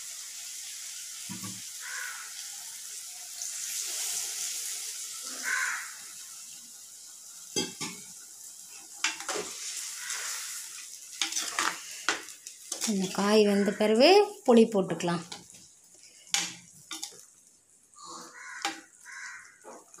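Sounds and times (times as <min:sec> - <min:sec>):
vegetables sizzling in oil: 0:00.0 - 0:20.0.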